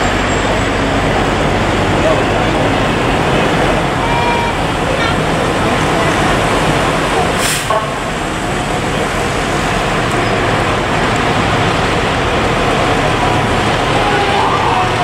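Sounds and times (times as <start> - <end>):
fire engines rolling past: 0.0 - 15.0
short sharp hiss: 7.4 - 7.9.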